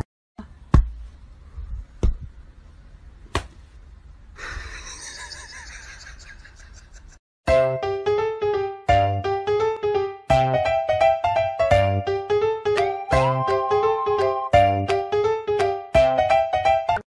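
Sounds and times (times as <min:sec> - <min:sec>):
low room rumble: 0:00.4 - 0:07.1.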